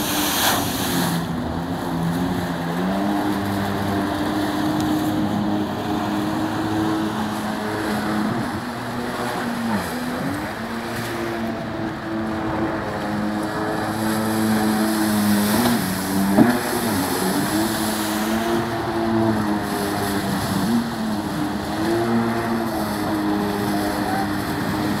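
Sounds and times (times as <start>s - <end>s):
hiss of spray and wash: 0.0s - 1.3s
jet ski engine running hard: 0.0s - 25.0s.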